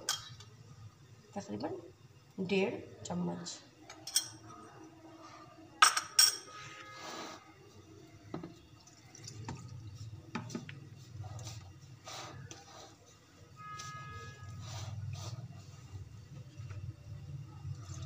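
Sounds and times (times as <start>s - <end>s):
kitchenware clinking: 0.0s - 0.4s, 3.8s - 4.7s, 5.8s - 6.6s
water sloshing in a bowl: 8.4s - 18.0s
hands kneading dough: 9.9s - 17.0s.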